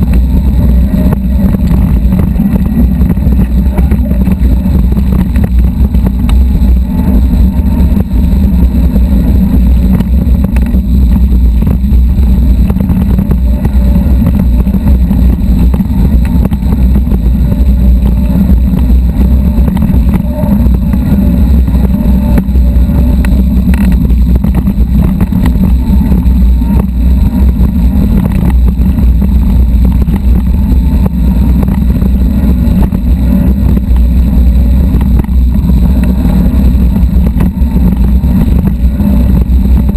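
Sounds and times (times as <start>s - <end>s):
bike rattling over gravel: 0.0s - 39.9s
wind rumble on microphone: 0.0s - 39.9s.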